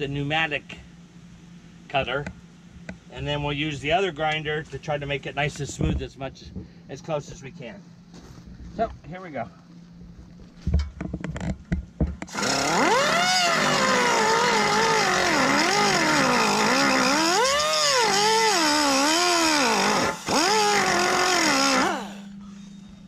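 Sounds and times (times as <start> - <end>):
pneumatic cut-off tool whining: 12.3 - 22.9.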